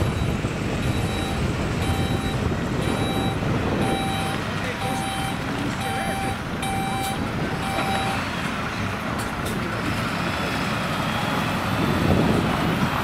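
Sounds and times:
reversing alarm beep: 0:00.0 - 0:08.2
diesel truck engine running: 0:00.0 - 0:13.0.

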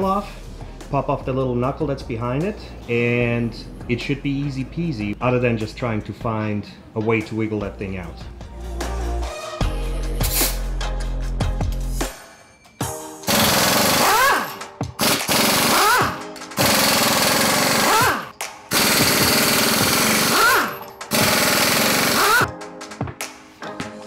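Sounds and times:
pneumatic impact wrench: 0:10.2 - 0:10.6, 0:13.3 - 0:22.5.

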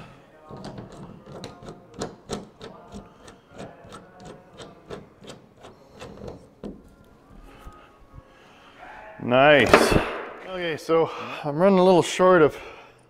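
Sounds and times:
screwdriver clicking and scraping: 0:00.5 - 0:06.8.

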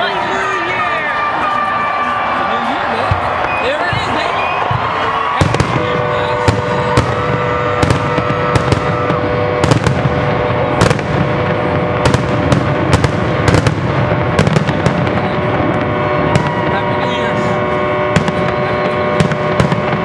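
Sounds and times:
fireworks bangs: 0:00.0 - 0:20.0
boat horns: 0:04.6 - 0:20.0.

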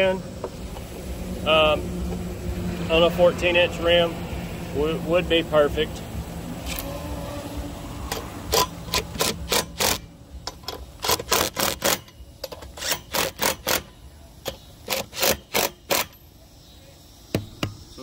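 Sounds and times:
impact driver hammering lug nuts: 0:08.1 - 0:16.2.

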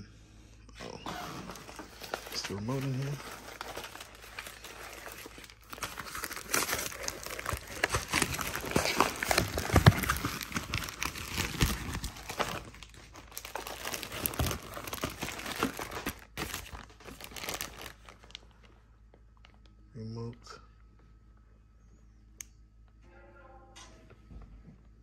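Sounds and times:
plastic and paper crinkling: 0:01.4 - 0:19.7.

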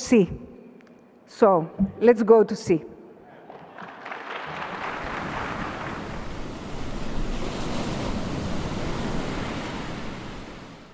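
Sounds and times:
ocean surf rushing: 0:04.6 - 0:10.9.

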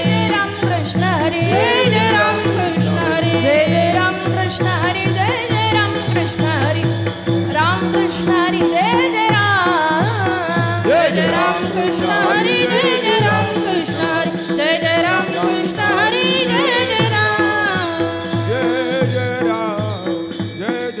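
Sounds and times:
woman singing: 0:00.0 - 0:18.7
hand cymbals clashing: 0:00.0 - 0:21.0.

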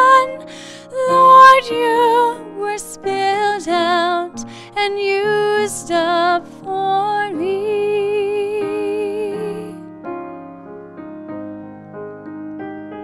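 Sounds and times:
woman singing: 0:00.0 - 0:09.9
piano: 0:00.0 - 0:13.0.

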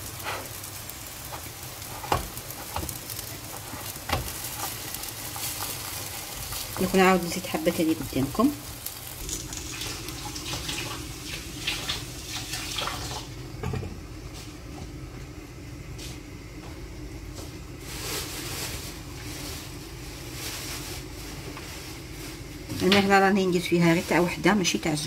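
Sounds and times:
steady low hum: 0:13.2 - 0:25.0.

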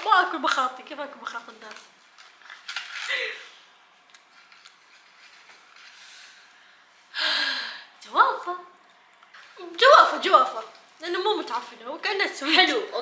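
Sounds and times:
woman breathing: 0:06.0 - 0:08.0.

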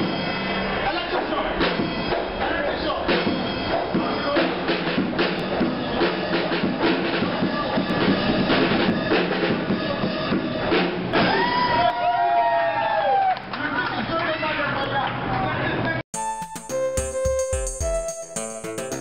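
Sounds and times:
drum kit playing groove: 0:01.5 - 0:11.2, 0:16.1 - 0:19.0.

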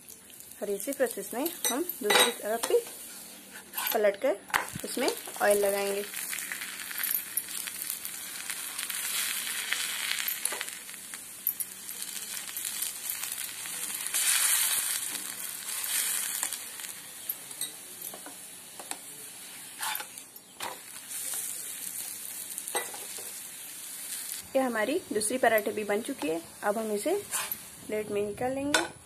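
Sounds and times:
oil sizzling in a pan: 0:00.0 - 0:28.8
steel spoon spreading oil: 0:27.2 - 0:27.8.

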